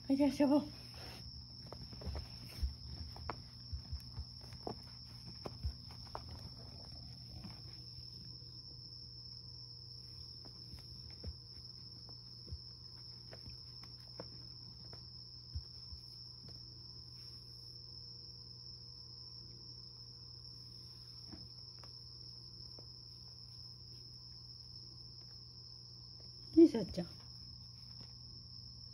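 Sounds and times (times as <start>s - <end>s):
soft thumps of cat pawing: 1.0s - 7.8s.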